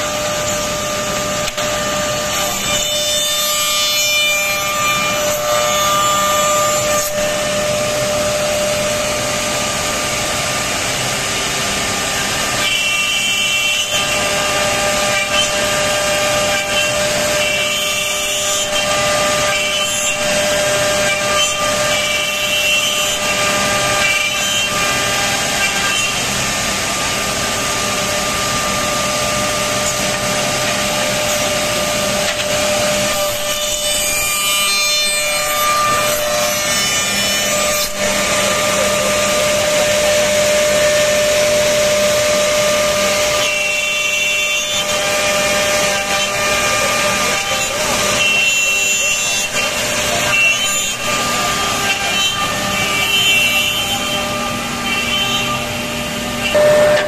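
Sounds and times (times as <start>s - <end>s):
wood being cut rasping: 11.7s - 56.7s.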